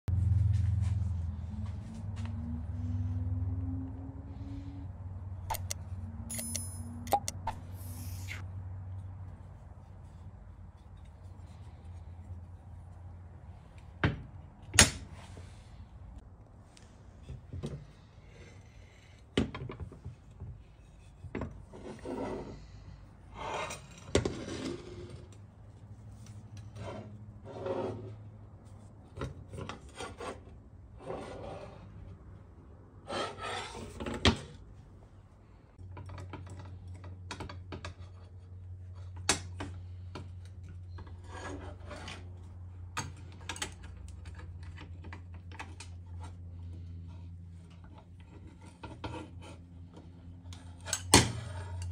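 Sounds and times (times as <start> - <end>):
metal wrenches clinking: 5.5 - 7.4.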